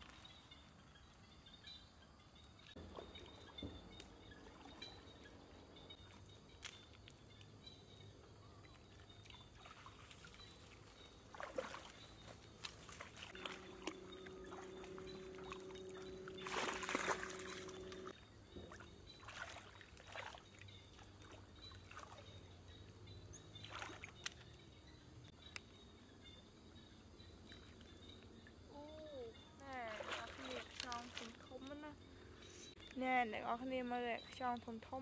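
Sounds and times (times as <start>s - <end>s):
water splashing as person wades: 8.6s - 22.4s, 23.6s - 24.4s, 29.8s - 31.8s
steady low hum: 10.3s - 19.3s
dog splashing through water: 11.2s - 15.6s, 16.4s - 18.0s.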